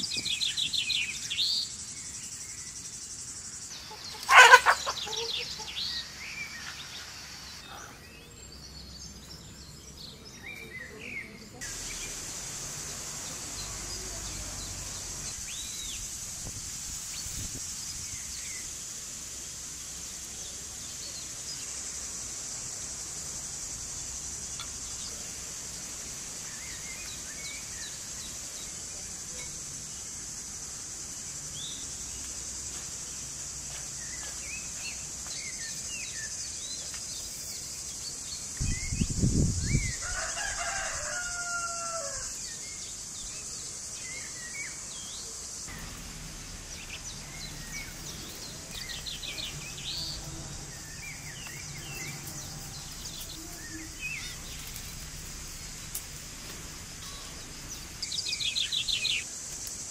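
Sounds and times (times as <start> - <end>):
small birds chirping: 0.0 - 59.9
rooster crowing: 4.2 - 5.6, 39.9 - 42.4
high-pitched insect buzz: 11.6 - 59.9
short low rush: 45.7 - 51.3.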